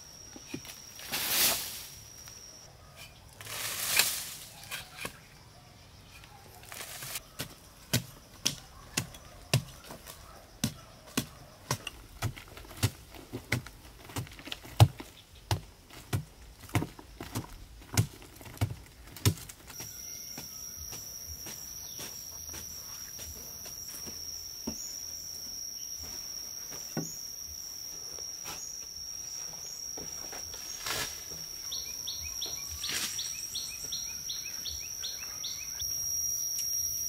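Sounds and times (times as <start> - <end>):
high-pitched insect drone: 0.0 - 2.7, 19.7 - 37.0
digging tool striking earth: 10.6 - 24.2.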